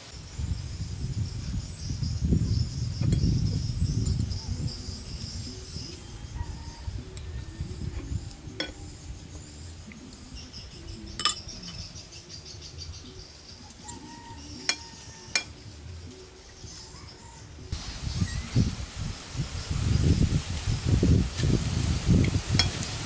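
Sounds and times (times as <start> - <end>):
insects chirping: 0.0 - 23.0
cutlery clinking on dishes: 11.2 - 11.8, 14.6 - 15.6.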